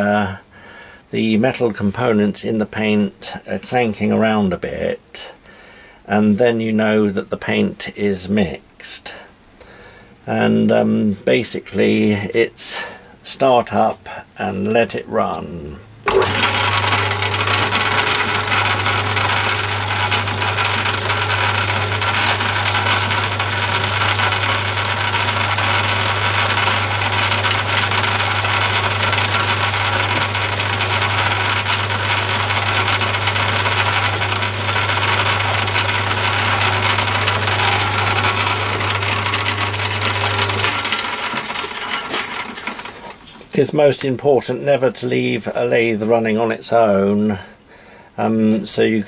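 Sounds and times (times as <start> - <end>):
lathe motor hum: 16.1 - 43.0
metal parts rattling in tin: 16.1 - 43.1.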